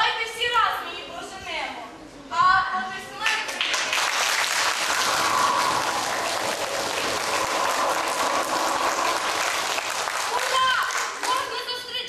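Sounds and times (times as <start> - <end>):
crowd applauding: 3.4 - 11.6.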